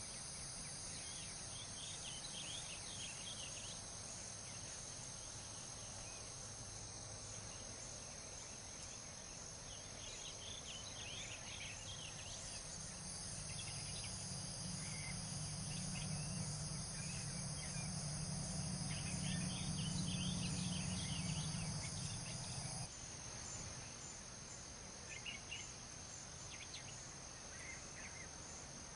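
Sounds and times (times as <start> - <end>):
machine hum with whine: 0.0 - 22.9
crickets chirring: 0.0 - 28.9.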